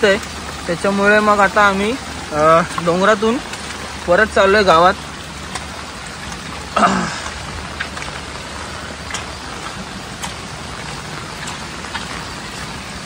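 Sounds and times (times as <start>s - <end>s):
rain and wind on microphone: 0.0s - 13.0s.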